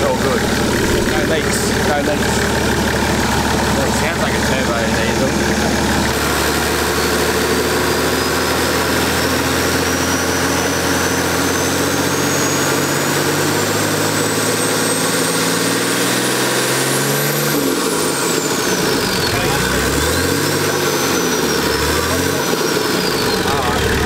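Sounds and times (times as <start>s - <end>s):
diesel engine revving: 0.0s - 24.0s
high turbo whistle: 6.8s - 23.5s.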